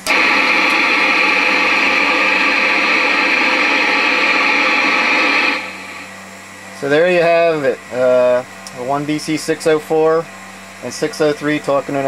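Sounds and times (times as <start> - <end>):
radio receiver static hiss: 0.0 - 6.4.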